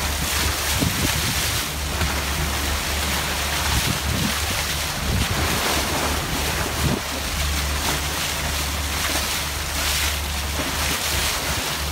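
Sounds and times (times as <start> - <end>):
water rushing past a boat hull: 0.0 - 11.9
wind buffeting microphone: 0.2 - 2.2, 3.6 - 7.2.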